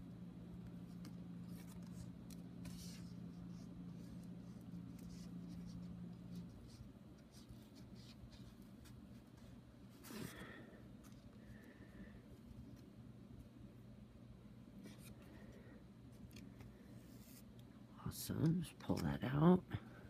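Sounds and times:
low steady hum: 0:00.0 - 0:20.0
ribbon rustling on paper card: 0:00.7 - 0:11.6.

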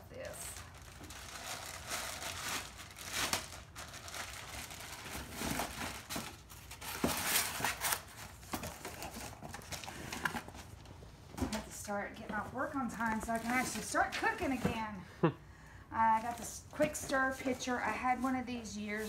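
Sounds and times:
plastic packaging crinkling: 0:00.5 - 0:10.8.

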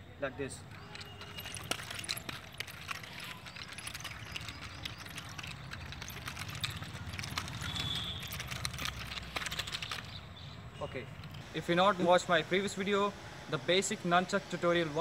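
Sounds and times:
nunchaku chain clattering: 0:00.5 - 0:10.2.

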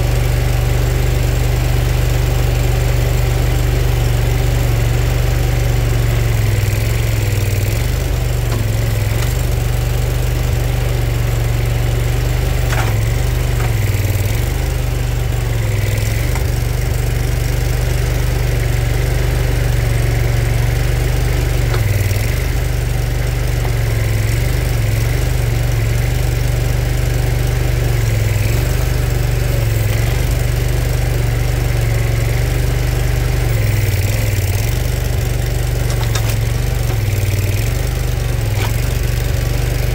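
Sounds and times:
engine running steadily: 0:00.0 - 0:39.9
grapple working over logs: 0:06.4 - 0:18.6, 0:20.5 - 0:26.0, 0:28.0 - 0:30.8, 0:33.0 - 0:39.9.

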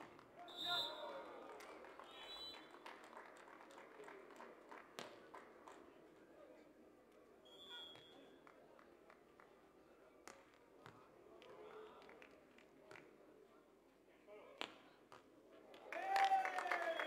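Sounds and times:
faint crowd murmur: 0:03.4 - 0:15.9.

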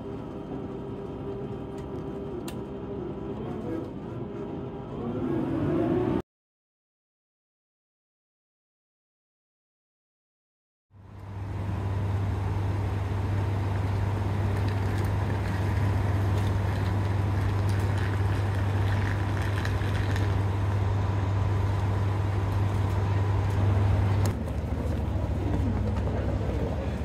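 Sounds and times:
diesel railcar engine idling: 0:11.0 - 0:27.0.

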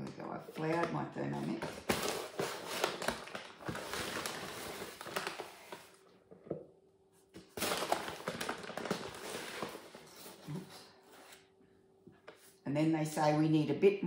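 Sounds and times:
paper flour bag rustling: 0:00.0 - 0:06.0, 0:07.4 - 0:11.4.

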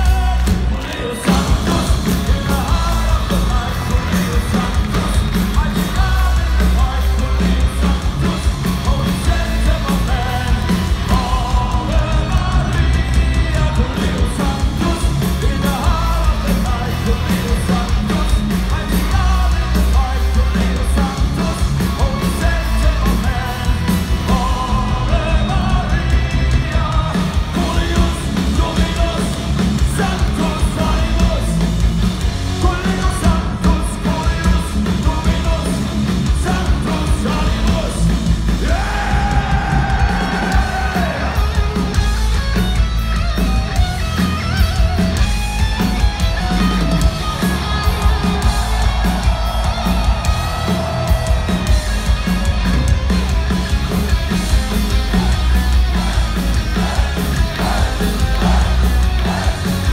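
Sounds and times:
sung lead vocal: 0:00.0 - 0:42.0, 0:54.4 - 0:59.9
drums: 0:00.0 - 0:59.9
electric guitars: 0:00.0 - 0:59.9.

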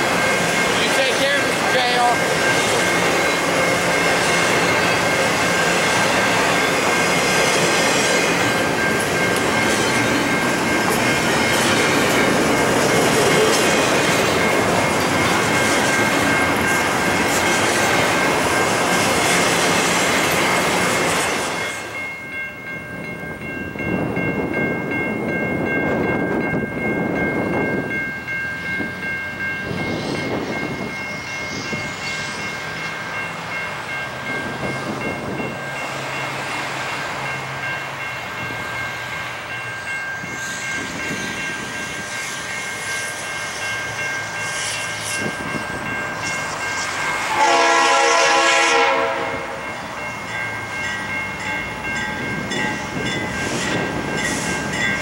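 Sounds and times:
steady high-pitched ring: 0:00.0 - 0:18.8, 0:21.5 - 0:47.0, 0:49.6 - 0:55.0
freight train cars rolling past: 0:00.0 - 0:55.0.

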